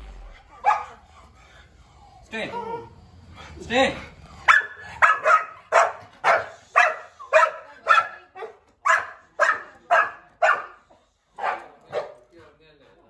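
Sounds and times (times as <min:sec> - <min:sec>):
dog barking angrily: 0:00.5 - 0:01.1, 0:04.4 - 0:12.2.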